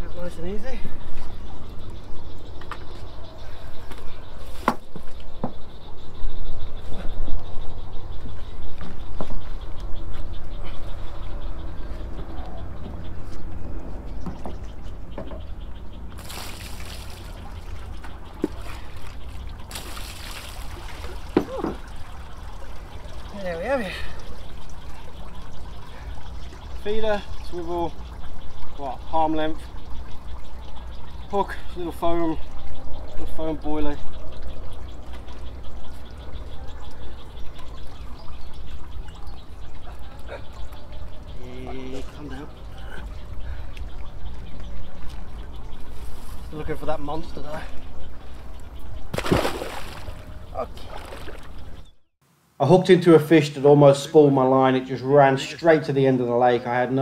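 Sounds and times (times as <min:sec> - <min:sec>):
water trickling and dripping: 0:00.0 - 0:51.9
water splashing from bucket: 0:16.2 - 0:29.6, 0:49.1 - 0:51.6.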